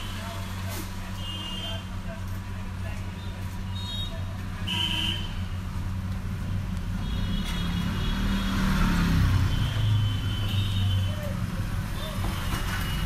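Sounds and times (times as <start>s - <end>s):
road traffic engine hum: 0.0s - 13.0s
vehicle passing: 6.2s - 10.3s.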